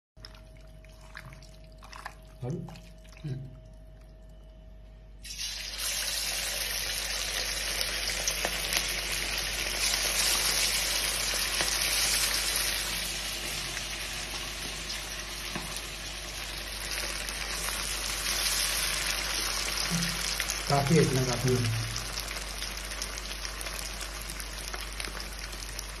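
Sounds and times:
chicken deep-frying in oil: 0:05.2 - 0:26.0.

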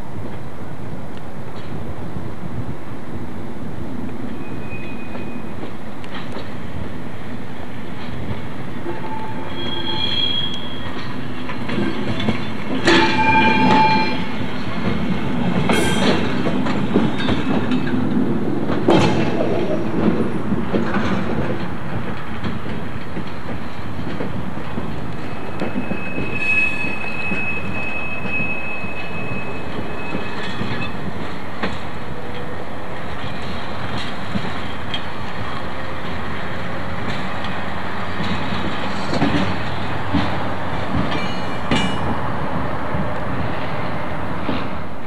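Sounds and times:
high wheel squeal: 0:04.4 - 0:05.6, 0:08.8 - 0:11.2, 0:12.9 - 0:14.4, 0:25.2 - 0:31.0
wheels clicking over rail joints: 0:05.1 - 0:07.1, 0:10.8 - 0:43.5.

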